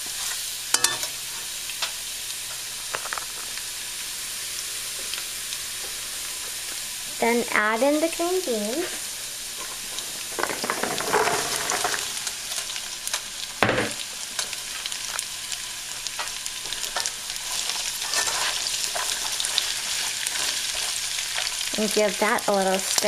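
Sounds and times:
green beans sizzling in oil: 0.0s - 23.0s.

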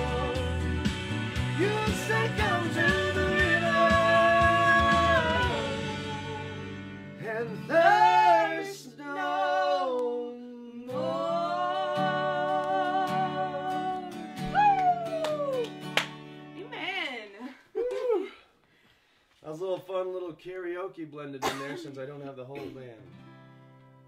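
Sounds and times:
karaoke backing track: 0.0s - 10.2s, 10.8s - 15.9s
woman singing: 1.6s - 6.4s, 10.9s - 15.5s
strummed acoustic guitar: 23.0s - 24.0s.

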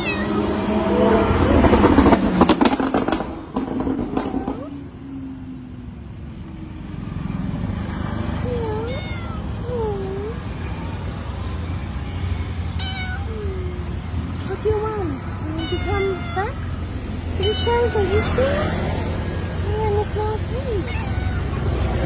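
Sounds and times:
cat meowing: 0.0s - 1.2s, 8.4s - 10.4s, 12.0s - 14.1s, 15.1s - 18.9s, 20.4s - 22.0s.

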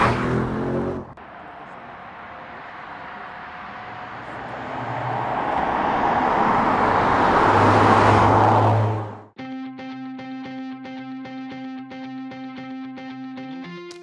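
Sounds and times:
car driving past: 0.0s - 9.3s.

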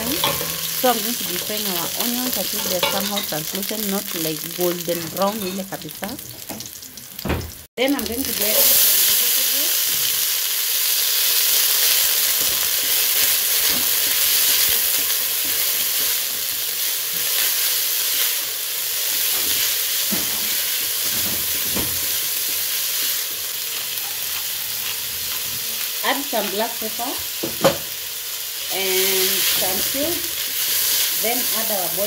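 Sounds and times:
vegetables sizzling in oil: 0.0s - 32.0s.

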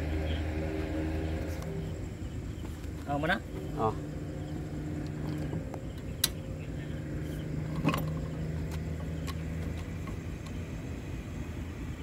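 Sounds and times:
air conditioner humming: 0.0s - 12.0s.

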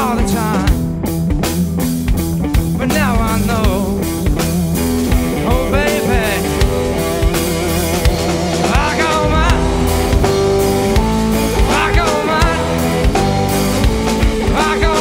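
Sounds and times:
bass: 0.0s - 15.0s
electric guitar: 0.0s - 15.0s
drum beat: 9.2s - 11.9s.

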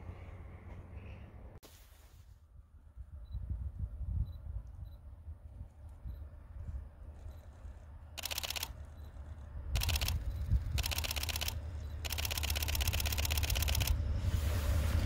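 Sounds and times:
approaching train rumble: 0.0s - 1.6s, 5.7s - 15.0s
camera shutter clicking: 8.2s - 8.8s, 9.8s - 14.0s.

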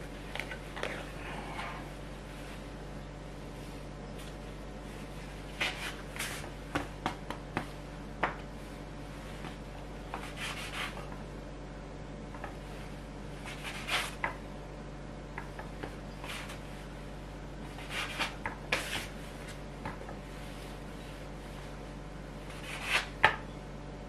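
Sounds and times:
faint steady hum: 0.0s - 24.0s
dough scraper scraping on wood: 5.6s - 6.5s, 9.3s - 11.2s, 13.4s - 14.4s, 15.8s - 16.6s, 17.6s - 21.6s, 22.4s - 23.4s.

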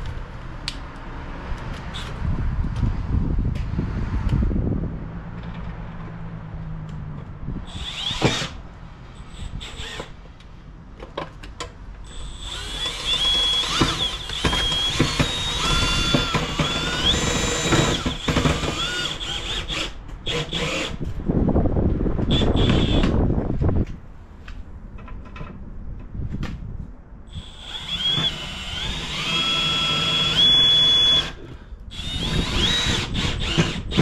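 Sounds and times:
cordless drill whining: 7.7s - 8.6s, 9.3s - 10.1s, 12.1s - 21.0s, 22.3s - 23.1s, 27.3s - 34.0s.

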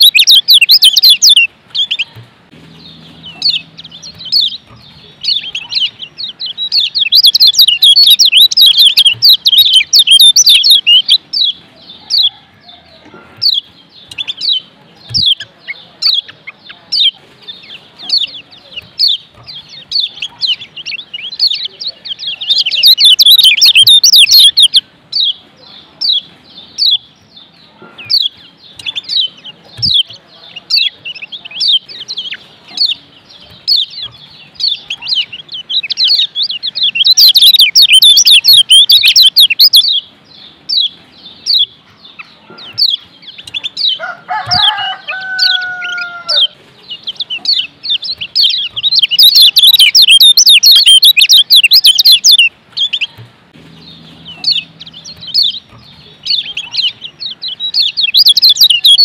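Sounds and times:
bird chirping rapidly: 0.0s - 59.0s
lower falling bird call: 42.5s - 59.0s.

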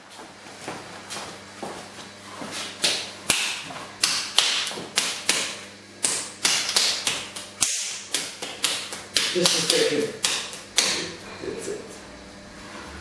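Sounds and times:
hands slapping wet clay: 2.6s - 11.1s.

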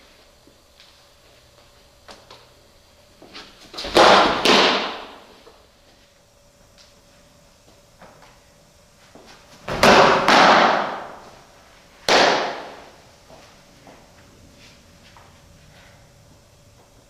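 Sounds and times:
softball smacks echoing indoors: 3.2s - 5.6s, 9.1s - 14.1s.

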